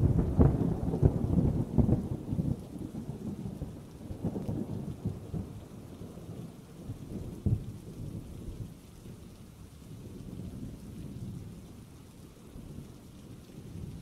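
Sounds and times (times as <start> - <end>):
thunder rumbling: 0.0 - 8.7
steady rain: 0.0 - 14.0.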